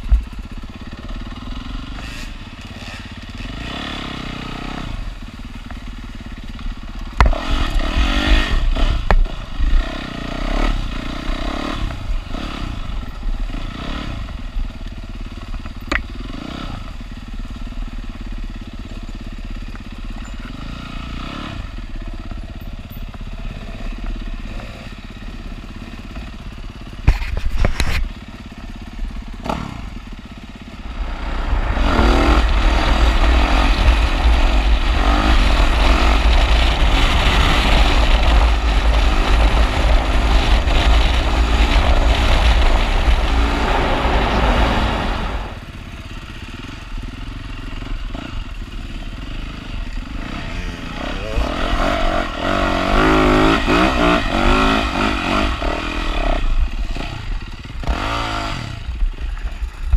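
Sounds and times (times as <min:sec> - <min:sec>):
dirt bike engine revving: 0:00.0 - 0:59.9
wind rushing over camera: 0:30.8 - 0:45.9.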